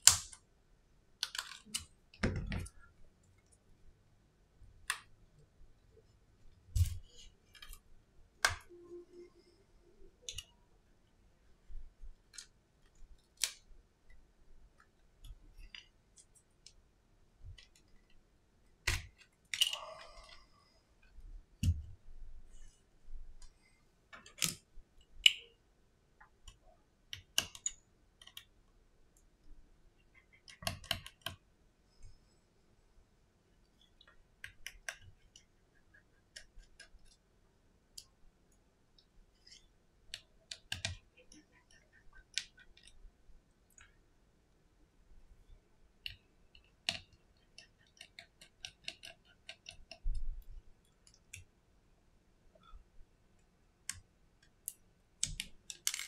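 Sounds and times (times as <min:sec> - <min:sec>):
fingers clicking and tapping phone: 0:01.2 - 0:02.8, 0:26.2 - 0:28.6, 0:30.1 - 0:31.4, 0:34.0 - 0:37.2, 0:39.5 - 0:43.0, 0:46.0 - 0:51.5, 0:53.8 - 0:56.0.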